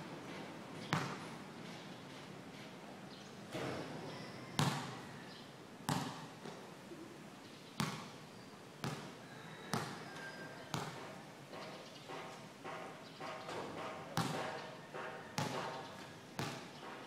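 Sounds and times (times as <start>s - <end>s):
basketball bouncing on concrete: 0.9s - 1.2s, 4.6s - 5.0s, 5.9s - 6.6s, 7.8s - 8.1s, 8.8s - 9.1s, 9.7s - 10.0s, 10.7s - 16.8s.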